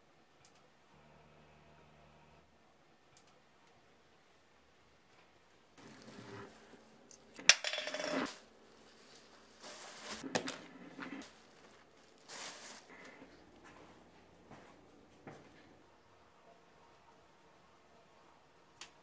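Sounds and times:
plastic bag rustling: 5.8s - 6.8s, 8.3s - 13.2s
small objects clinking: 7.4s - 8.4s.

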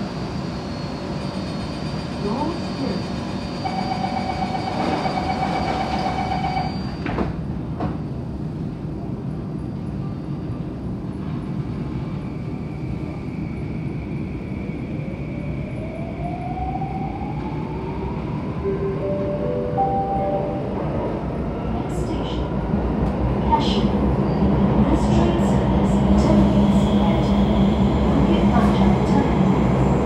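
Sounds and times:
train car rumble: 18.6s - 30.0s.

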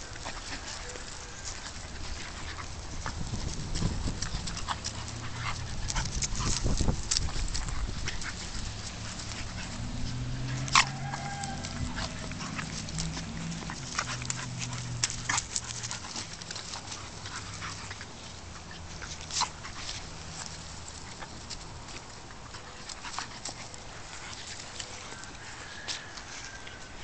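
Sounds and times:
dogs growling: 0.0s - 25.3s
dog yelps: 10.5s - 12.8s.

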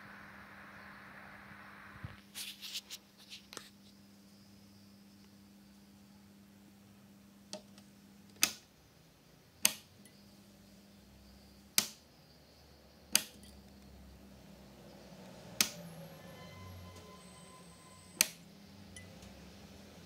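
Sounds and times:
fluorescent lamp humming: 3.5s - 20.0s
light switch clicks: 8.4s - 8.6s, 9.6s - 9.9s, 11.8s - 12.0s, 13.1s - 13.4s, 18.2s - 18.4s.

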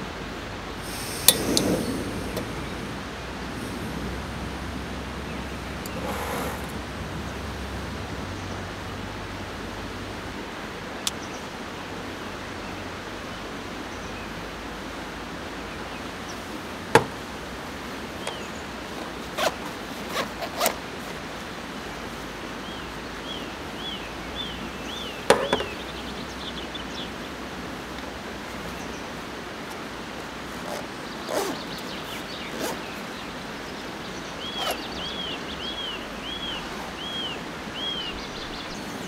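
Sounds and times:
gas stove hissing: 0.8s - 8.4s
bird calling: 0.8s - 8.6s, 34.1s - 39.0s.

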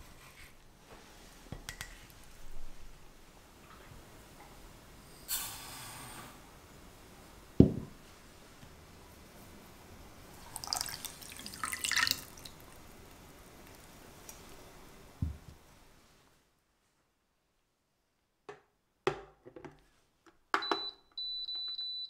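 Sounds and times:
sugar pouring into saucepan: 10.3s - 14.0s
water pouring and splashing: 10.3s - 14.2s.

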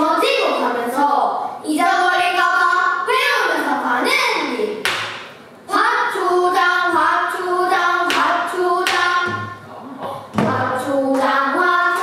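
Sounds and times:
children singing: 6.1s - 12.0s.

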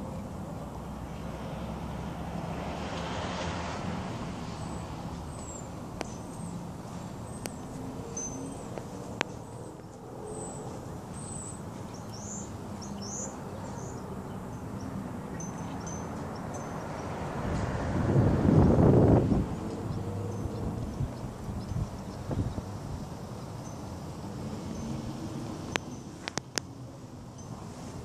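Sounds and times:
small birds chirping: 4.6s - 17.1s.

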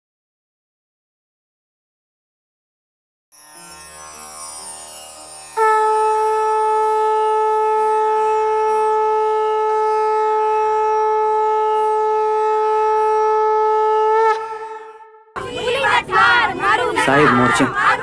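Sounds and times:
conch shell blown: 3.6s - 15.4s.

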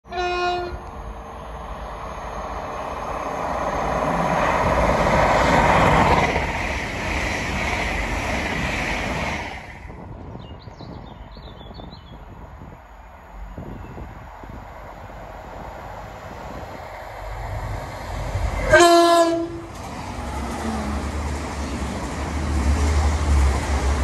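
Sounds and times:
train passing by: 0.1s - 24.0s.

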